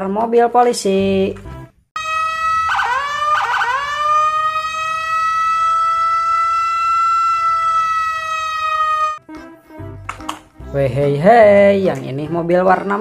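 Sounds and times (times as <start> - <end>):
police siren: 2.0 - 9.2.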